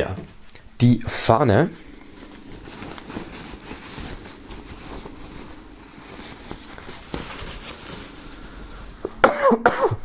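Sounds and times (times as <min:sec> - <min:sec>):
flag fabric rustling and flapping: 0:01.9 - 0:09.1.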